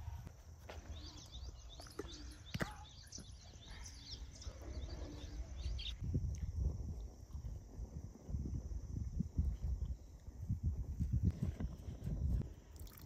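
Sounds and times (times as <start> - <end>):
small birds chirping: 0.6 - 6.0
wind rumble on microphone: 3.4 - 13.0.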